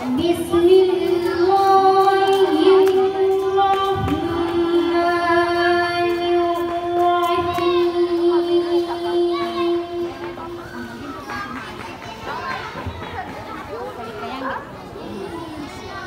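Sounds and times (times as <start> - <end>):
woman chanting recitation: 0.0 - 11.0.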